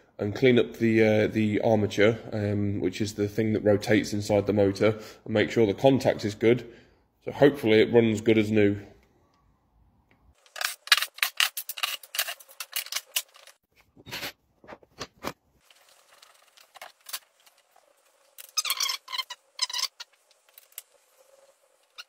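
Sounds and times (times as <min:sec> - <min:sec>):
hand tools clicking and scraping: 0:10.4 - 0:14.4.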